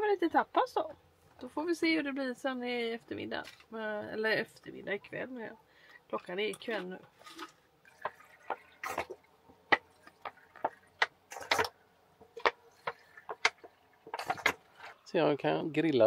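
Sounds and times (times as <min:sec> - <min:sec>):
water splashing drips: 0:06.1 - 0:11.5, 0:12.2 - 0:14.8.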